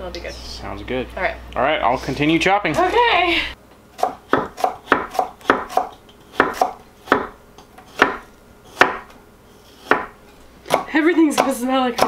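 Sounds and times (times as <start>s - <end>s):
knife chopping on wooden board: 4.0s - 12.0s.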